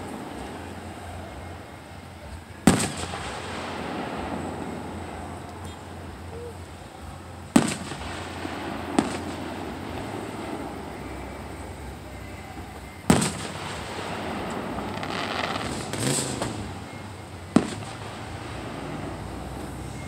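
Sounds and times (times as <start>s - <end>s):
steady background noise: 0.0s - 20.0s
distant firework booms: 2.6s - 5.5s, 7.5s - 11.5s, 13.1s - 19.3s.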